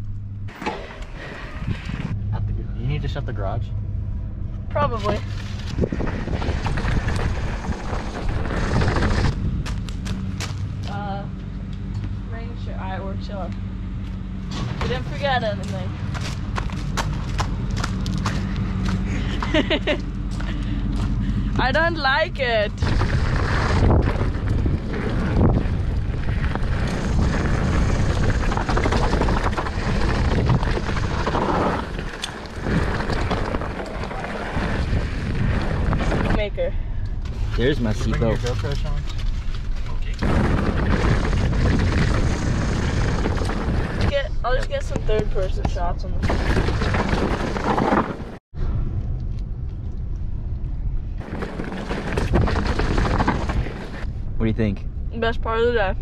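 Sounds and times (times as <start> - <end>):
wind buffeting microphone: 1.1 - 3.2, 4.7 - 11.4, 14.5 - 56.0
bike tyres on dirt trail: 4.8 - 11.0, 14.0 - 44.9, 46.0 - 48.4, 50.9 - 54.2.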